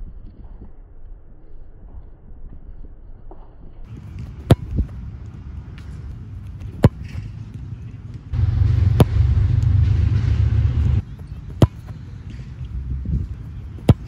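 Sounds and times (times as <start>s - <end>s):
soccer ball kicked thumps: 3.9s - 5.1s, 13.2s - 14.0s
steady low rumble: 3.9s - 14.0s.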